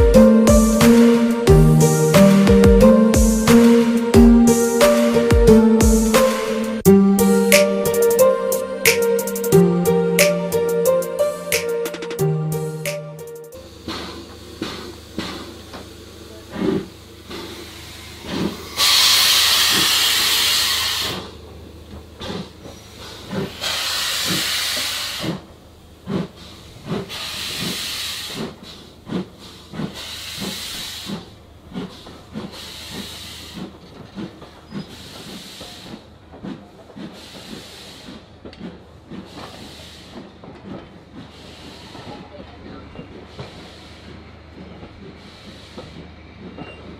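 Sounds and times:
rhythmic wheel knocks: 0:00.0 - 0:06.9
steam exhaust puffs: 0:13.6 - 0:21.3, 0:22.2 - 0:42.4, 0:43.1 - 0:46.9
steam hiss: 0:13.8 - 0:21.3, 0:23.1 - 0:31.3, 0:31.9 - 0:33.7, 0:34.8 - 0:36.1, 0:36.7 - 0:38.4, 0:39.2 - 0:40.4, 0:41.2 - 0:42.3, 0:43.2 - 0:44.2, 0:45.2 - 0:46.1.

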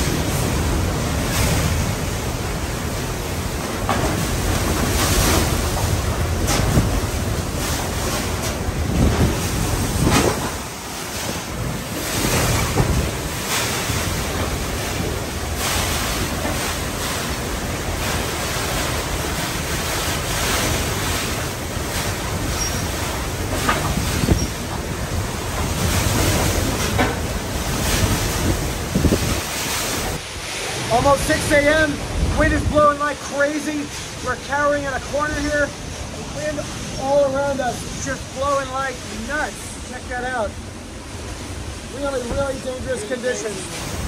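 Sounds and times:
wind buffeting microphone: 0:00.0 - 0:30.3
strong gusting wind: 0:00.0 - 0:44.0
wind-driven rain: 0:00.0 - 0:44.0.

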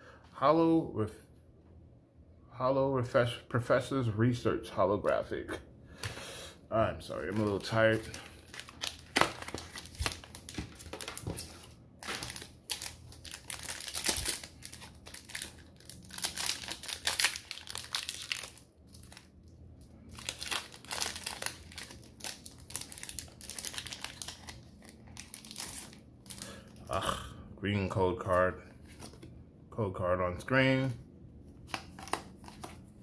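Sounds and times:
foil wrapper crinkling and tearing: 0:07.1 - 0:19.3, 0:20.0 - 0:26.7.

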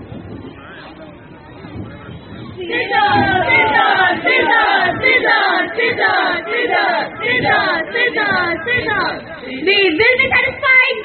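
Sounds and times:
group shouting in unison: 0:02.7 - 0:08.5.

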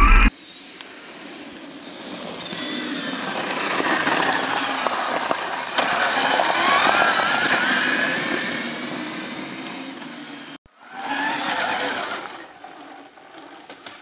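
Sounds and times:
electric motorcycle motor whine: 0:00.0 - 0:00.3.

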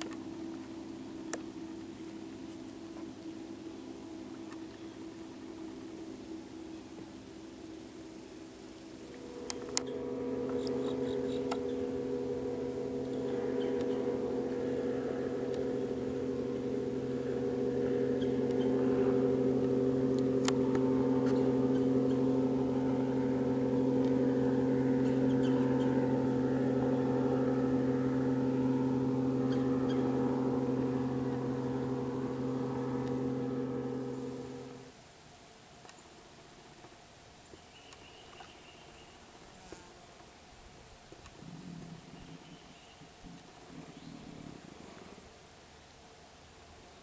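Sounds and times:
motorboat engine droning: 0:00.0 - 0:35.0.

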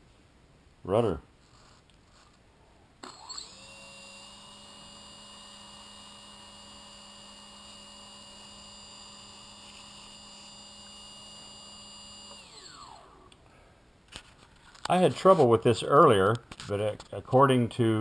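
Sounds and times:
small electric motor whining: 0:03.0 - 0:13.3.

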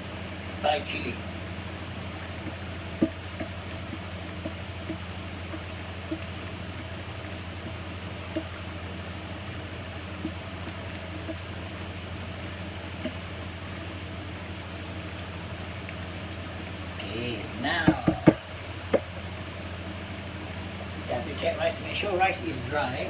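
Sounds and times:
food simmering in a pan: 0:00.0 - 0:23.0
steady low hum: 0:00.0 - 0:23.0
wooden spatula knocking: 0:17.8 - 0:19.1.

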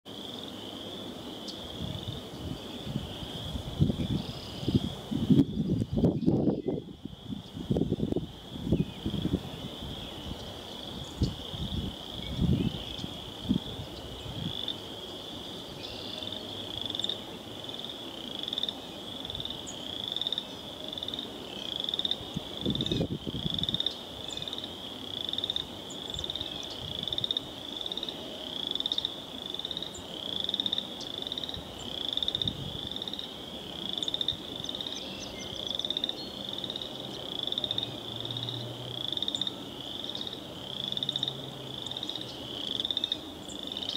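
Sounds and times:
frog trilling: 0:16.1 - 0:43.9.

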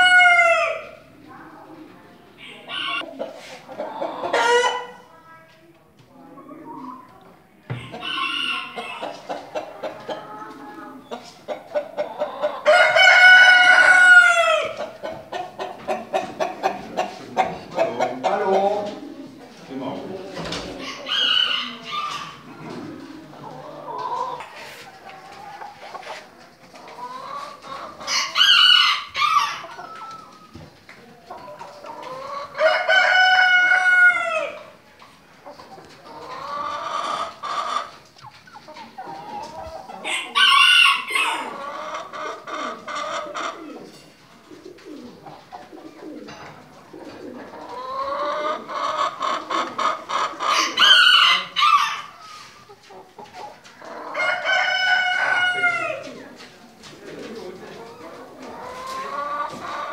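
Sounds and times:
roosters crowing: 0:00.0 - 0:01.1, 0:02.4 - 0:05.0, 0:07.7 - 0:11.1, 0:11.8 - 0:17.4, 0:20.3 - 0:25.7, 0:27.0 - 0:30.6, 0:31.6 - 0:34.8, 0:39.1 - 0:43.8, 0:47.2 - 0:52.5, 0:53.8 - 0:56.2
hens clucking: 0:00.0 - 0:59.9.

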